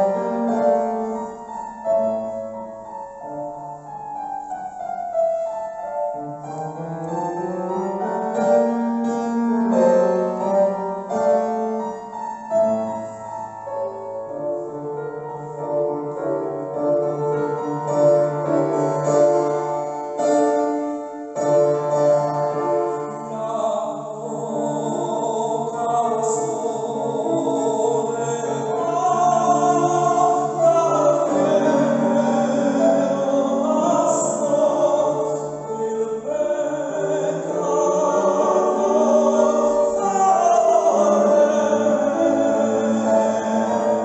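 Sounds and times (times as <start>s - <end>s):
grand piano chords: 0.0s - 44.0s
tenor singing: 17.6s - 44.0s.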